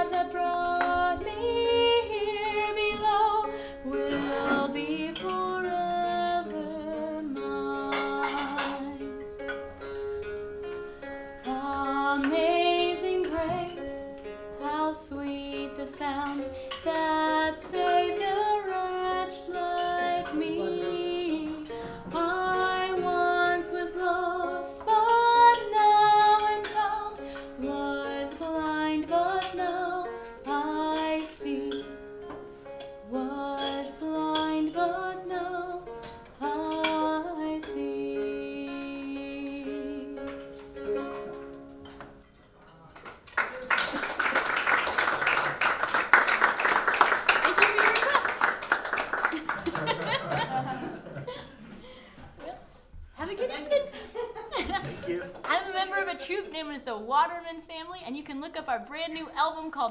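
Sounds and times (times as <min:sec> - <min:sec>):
person singing: 0:00.0 - 0:09.5, 0:11.4 - 0:32.0, 0:33.0 - 0:41.5
plucked string accompaniment: 0:00.0 - 0:59.9.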